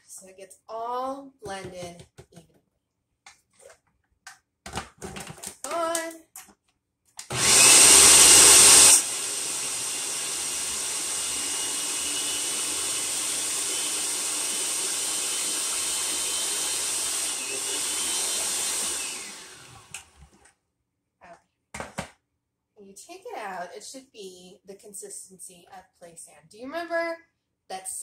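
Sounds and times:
food processor running: 0:07.3 - 0:20.4.

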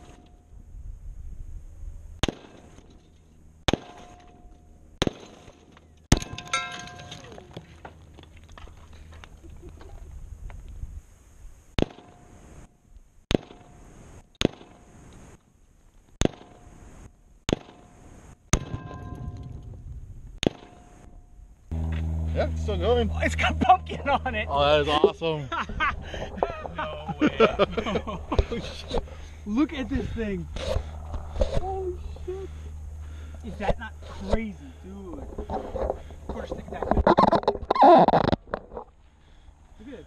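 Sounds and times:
gunshots: 0:02.2 - 0:02.8, 0:03.7 - 0:04.2, 0:05.0 - 0:05.5, 0:11.8 - 0:12.2, 0:13.3 - 0:13.8, 0:14.4 - 0:14.9, 0:16.2 - 0:16.7, 0:17.5 - 0:19.2, 0:20.4 - 0:20.9
metallic ringing: 0:06.2 - 0:07.5, 0:18.6 - 0:19.6
falling whine: 0:21.0 - 0:36.3.

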